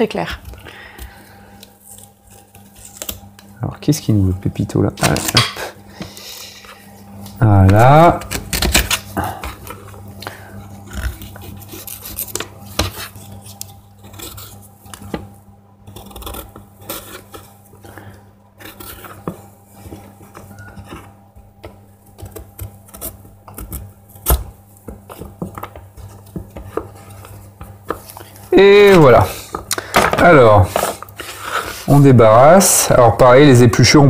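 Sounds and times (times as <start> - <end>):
knife scraping on cutting board: 10.7 - 15.2, 15.9 - 18.0, 18.6 - 21.2.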